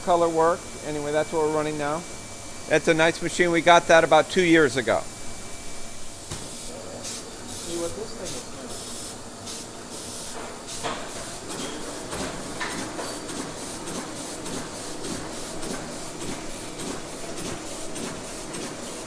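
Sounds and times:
steady hiss: 0.1 - 12.0
printing press clattering: 10.5 - 19.0.

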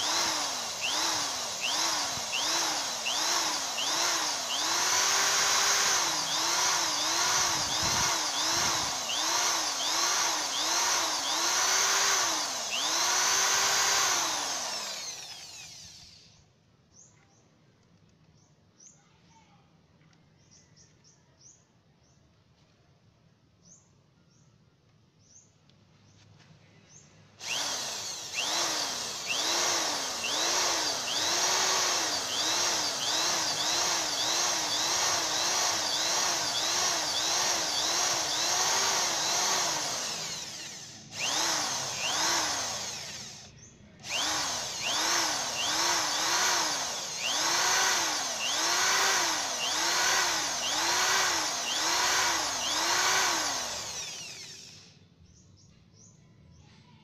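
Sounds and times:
electric drill boring into metal: 0.0 - 16.4, 27.4 - 55.0.

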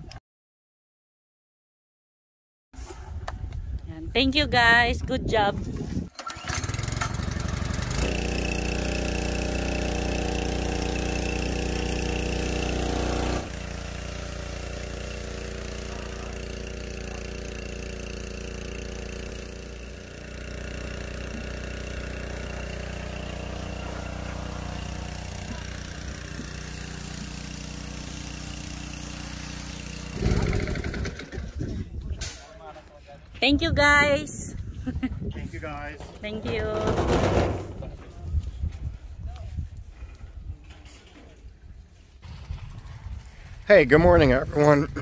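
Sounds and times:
small petrol engine running: 6.1 - 31.6
water jet spraying: 8.0 - 20.0, 20.6 - 30.9.

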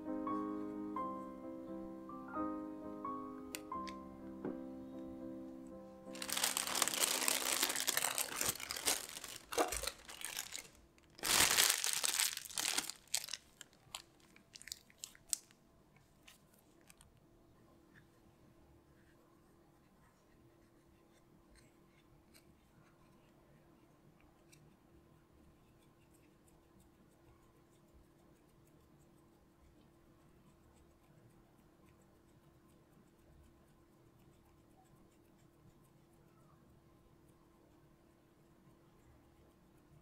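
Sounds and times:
plastic piping bag crinkling: 6.1 - 15.6
soft crackles and clicks: 6.1 - 17.3.

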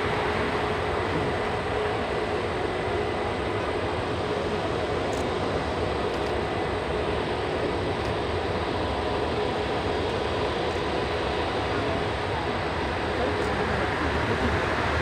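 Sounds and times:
jet engines rumbling with whine: 0.0 - 15.0.

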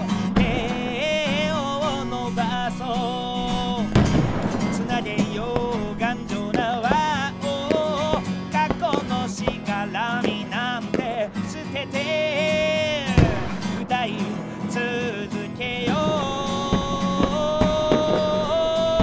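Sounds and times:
sharp bang: 0.0 - 11.7, 12.4 - 19.0
backing music: 0.0 - 19.0
person singing: 0.0 - 19.0.

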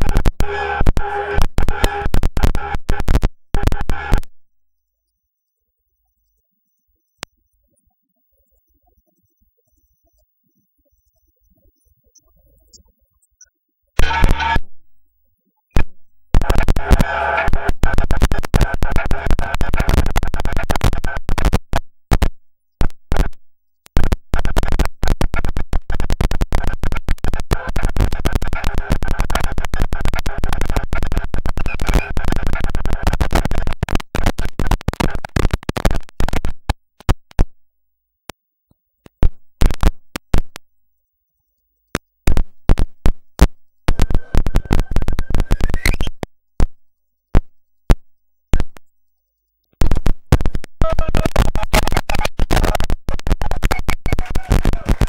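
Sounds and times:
stuttering synthesizer sound: 0.0 - 4.3, 6.2 - 14.7, 15.7 - 21.6
high tone bending upward: 6.3 - 14.7
held synthesizer drone: 7.6 - 15.6, 16.2 - 19.8.

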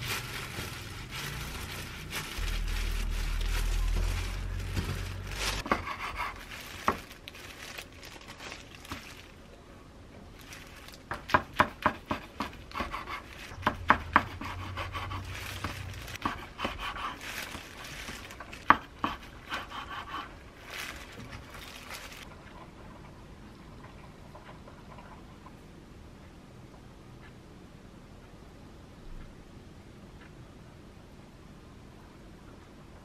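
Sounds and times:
knife crackling through seaweed: 5.2 - 9.3
faint rustle: 20.6 - 22.3.

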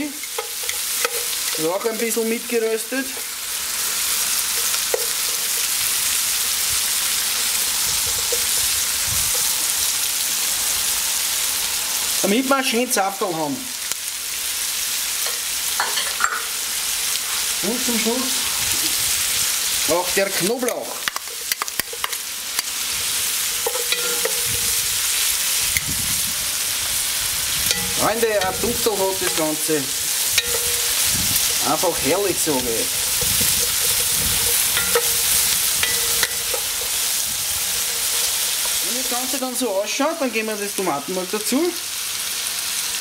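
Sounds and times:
metal tongs stirring: 0.0 - 2.4, 4.5 - 5.8, 19.9 - 25.0, 27.7 - 39.6
vegetables sizzling in oil: 0.0 - 43.0.

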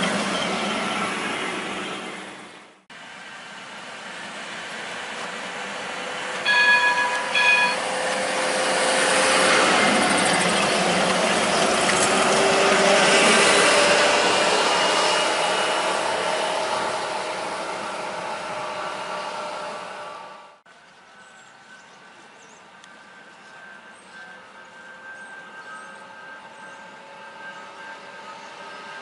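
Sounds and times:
tram passing: 0.0 - 29.0
tram horn blasts: 6.2 - 10.0, 22.8 - 29.0.

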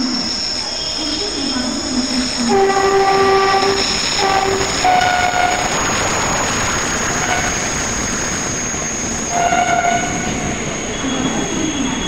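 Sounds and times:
train rushing and wheel clatter: 0.0 - 12.0
locomotive horn blasts: 2.5 - 5.8, 7.2 - 7.7, 9.3 - 10.5.

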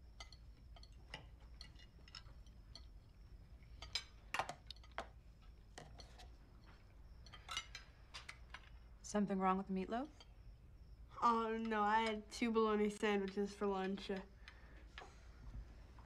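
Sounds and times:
cutlery clinking on plates: 7.2 - 7.9.

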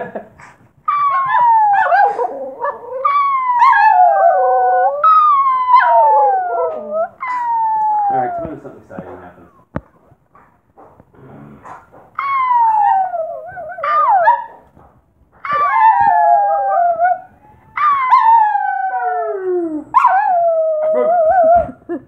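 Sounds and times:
small dog howling: 0.9 - 8.7, 12.2 - 14.6, 15.4 - 21.8.

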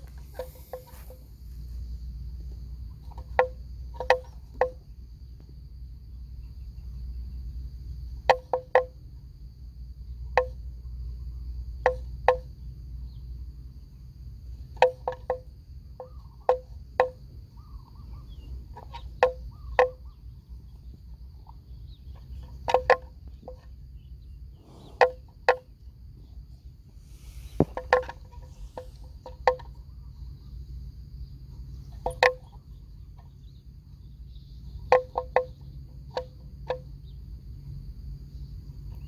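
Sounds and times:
high insect whine: 0.0 - 39.0.

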